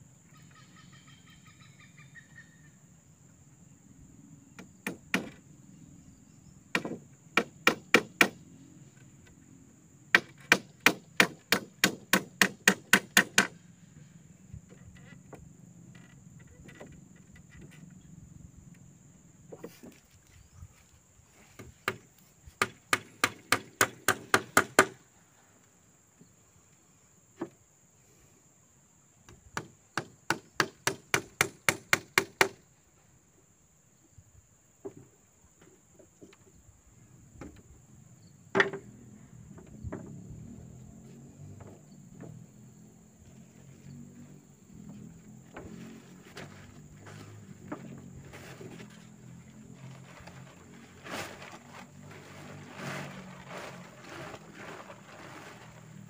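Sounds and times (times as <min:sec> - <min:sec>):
high insect drone: 0:00.0 - 0:56.0
hand tool striking wood: 0:06.7 - 0:08.4, 0:10.1 - 0:13.6, 0:21.6 - 0:25.0, 0:29.6 - 0:32.6.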